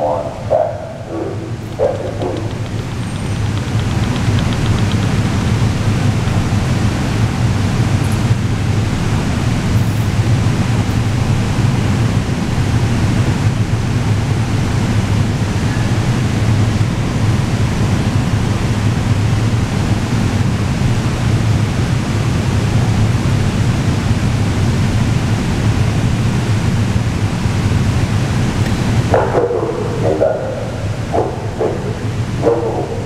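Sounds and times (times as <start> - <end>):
low rumbling station background noise: 0.0 - 33.0.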